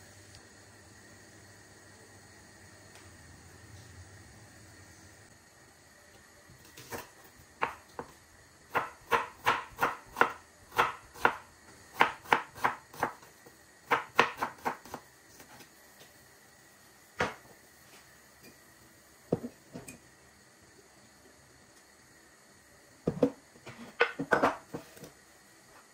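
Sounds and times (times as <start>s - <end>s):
knife chopping on cutting board: 8.7s - 11.4s, 12.0s - 13.2s, 13.9s - 15.0s.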